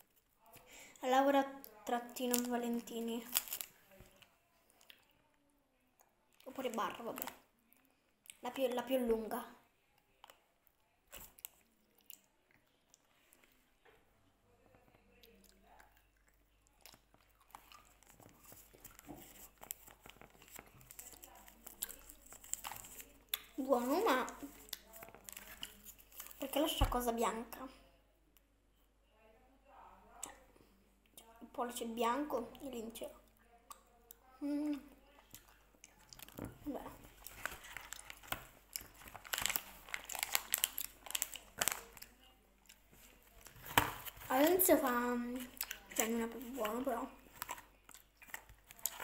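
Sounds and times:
candy stick crunching: 1.8s - 3.8s, 15.2s - 26.6s, 34.7s - 49.0s
wrapper crinkling: 2.2s - 4.2s, 17.5s - 26.6s, 35.9s - 42.2s, 42.8s - 49.0s.

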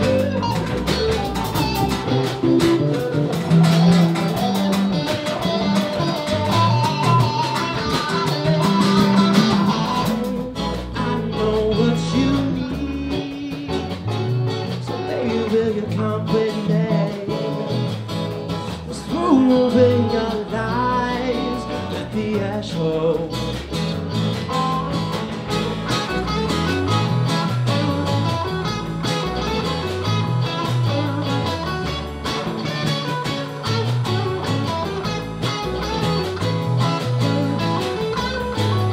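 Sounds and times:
bass guitar: 0.0s - 38.9s
electric guitars: 0.0s - 38.9s
strummed acoustic guitar: 0.0s - 38.9s
person singing: 8.2s - 18.0s, 18.8s - 23.6s.

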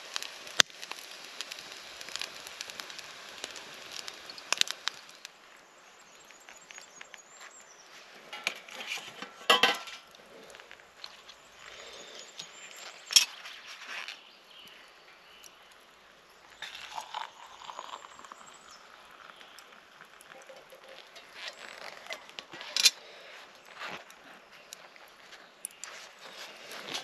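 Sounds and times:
metal cookware clinking: 8.3s - 10.0s, 20.3s - 21.6s
water pouring into a mug: 16.6s - 22.4s.

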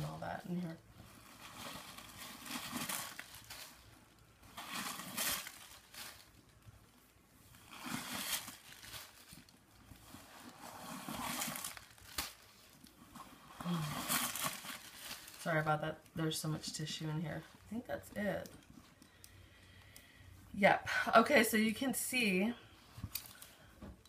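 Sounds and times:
tissue paper rustling and crinkling: 0.0s - 16.0s.

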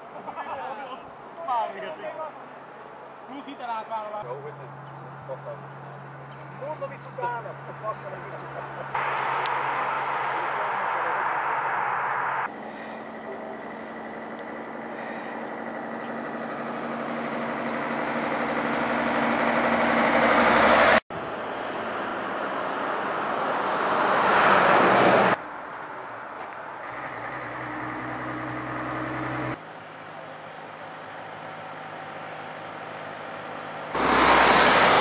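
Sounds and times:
steady traffic noise: 0.0s - 35.0s
vehicle passing on highway: 4.2s - 35.0s.

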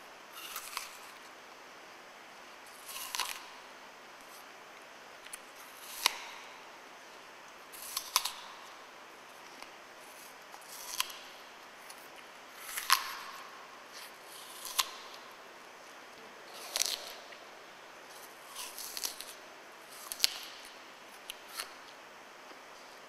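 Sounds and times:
crunching bites into apple: 0.4s - 1.2s, 2.7s - 3.5s, 5.2s - 6.5s, 7.7s - 8.5s, 10.1s - 11.4s, 12.6s - 15.3s, 16.5s - 17.4s, 18.1s - 21.9s.

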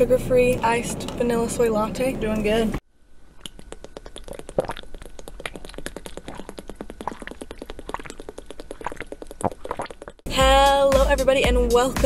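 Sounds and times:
water bubbling: 3.3s - 10.3s.

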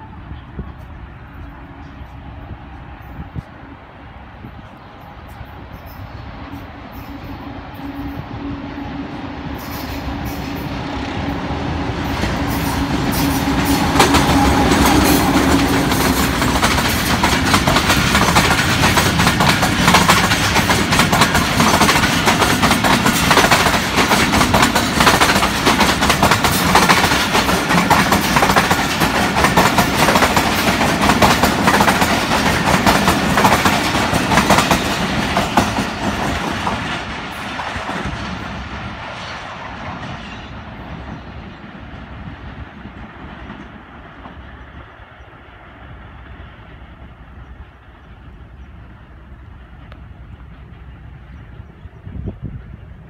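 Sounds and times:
locomotive low drone: 0.0s - 53.0s
train wheels clattering over joints: 12.1s - 38.7s.

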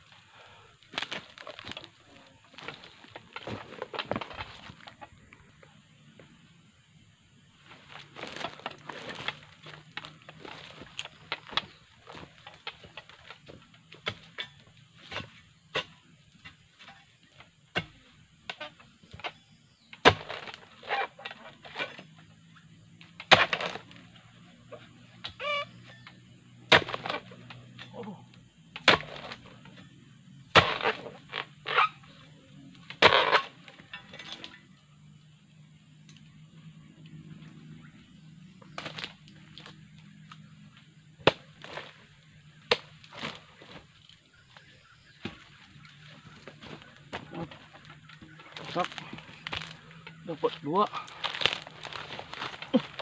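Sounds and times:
chisel chopping palm stalks: 2.6s - 5.0s, 7.9s - 22.1s, 23.1s - 24.1s, 24.8s - 29.9s, 30.5s - 32.1s, 32.8s - 34.6s, 38.6s - 40.5s, 41.2s - 53.0s.

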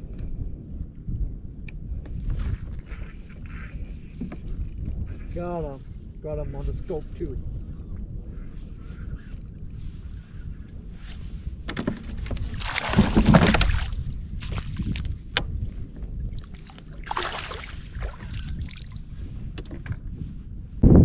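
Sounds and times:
water splashing: 12.5s - 14.7s, 16.4s - 18.9s.

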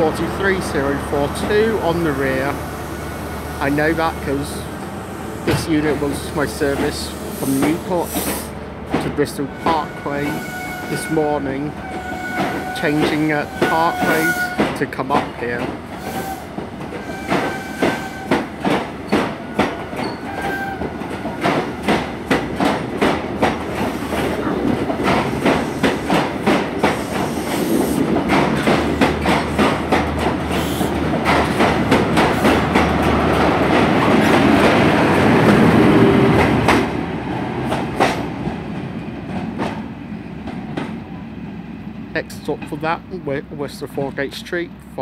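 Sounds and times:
train wheels clicking over rail joints: 3.7s - 37.0s, 37.6s - 41.0s.

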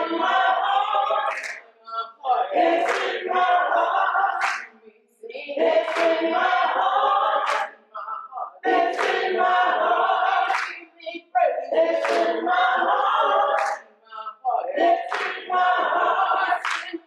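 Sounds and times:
gospel choir singing: 0.0s - 17.0s
hands clapping: 1.0s - 1.7s, 2.6s - 3.5s, 4.4s - 4.8s, 5.8s - 6.6s, 7.3s - 7.8s, 8.7s - 10.8s, 11.8s - 13.9s, 14.8s - 17.0s.

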